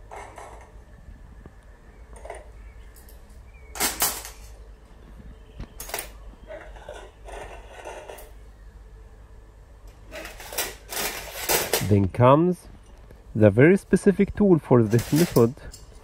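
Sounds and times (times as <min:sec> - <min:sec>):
metal instruments clinking on tray: 0:02.2 - 0:04.6, 0:05.8 - 0:08.4, 0:09.9 - 0:12.0, 0:14.8 - 0:16.0.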